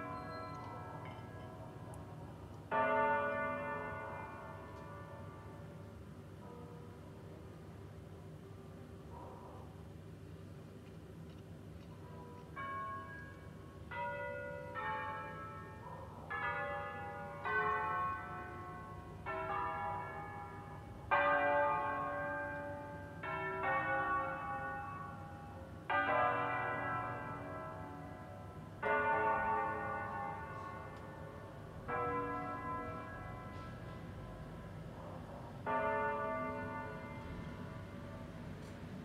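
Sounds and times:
church bells ringing melody: 0:00.0 - 0:07.4, 0:11.9 - 0:39.0.

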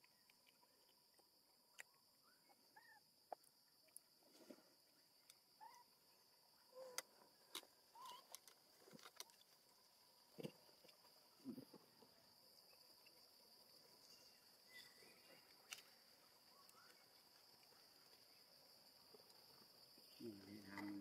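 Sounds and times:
high insect drone: 0:04.4 - 0:21.0.

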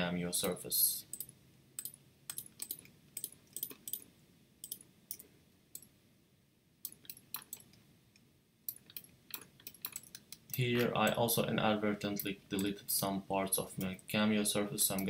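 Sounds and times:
computer mouse clicking: 0:00.4 - 0:05.9, 0:06.8 - 0:11.2.

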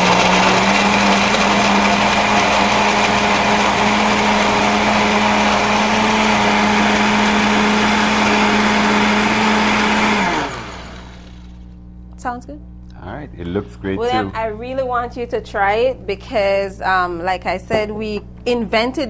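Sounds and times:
blender motor running: 0:00.0 - 0:11.8.

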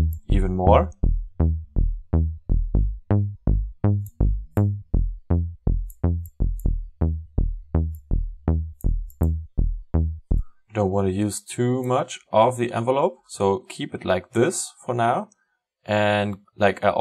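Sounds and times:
synthesized bass notes: 0:00.0 - 0:10.7.

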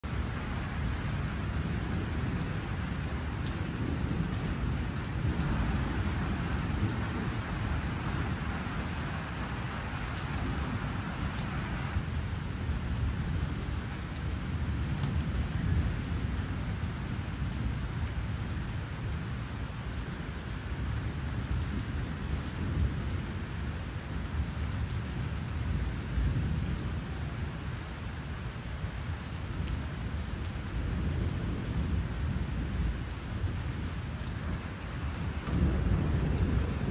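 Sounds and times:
steady rain: 0:00.0 - 0:36.9
low rumbling thunder: 0:01.3 - 0:09.6, 0:21.0 - 0:23.4, 0:30.7 - 0:36.9.

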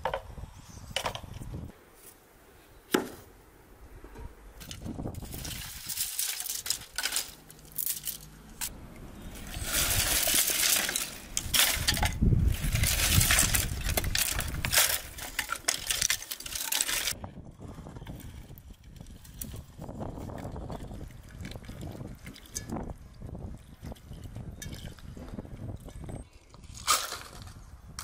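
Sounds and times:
twigs crackling and rustling: 0:04.6 - 0:17.2.

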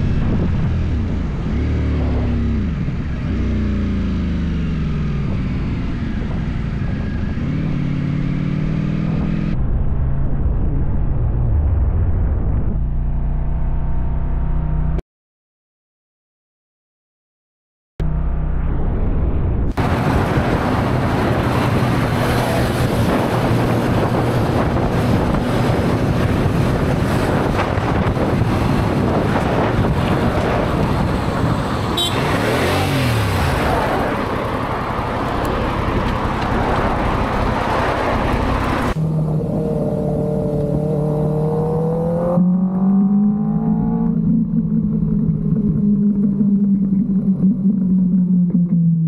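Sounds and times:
wind rush: 0:00.0 - 0:03.0, 0:18.7 - 0:42.3
motorcycle engine accelerating: 0:00.0 - 0:15.0, 0:18.0 - 0:49.0.

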